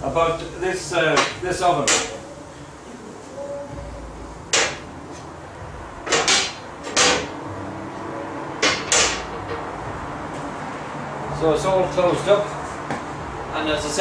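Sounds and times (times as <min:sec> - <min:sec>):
metal oven doors clanking: 0:06.0 - 0:07.4.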